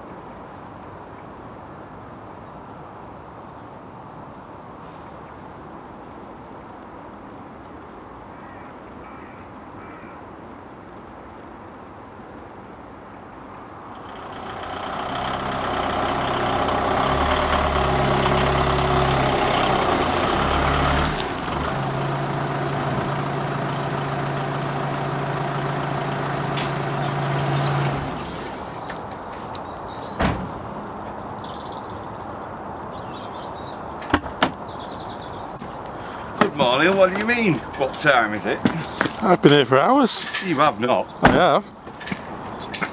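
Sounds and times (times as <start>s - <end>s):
van engine humming: 5.8s - 42.9s
van door clicks: 30.0s - 31.2s, 34.0s - 34.7s.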